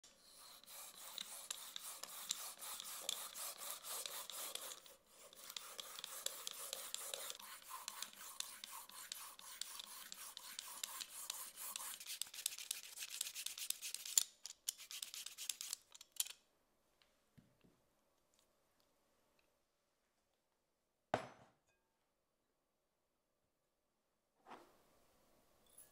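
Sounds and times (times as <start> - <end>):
vegetable peeler scraping zucchini: 0.1 - 15.8.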